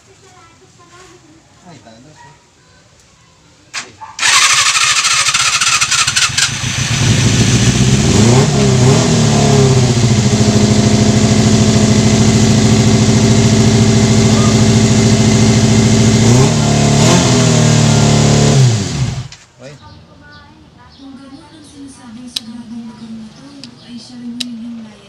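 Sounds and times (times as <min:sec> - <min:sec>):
motorcycle engine starting: 0:03.8 - 0:19.4
motorcycle engine revving: 0:04.2 - 0:19.4.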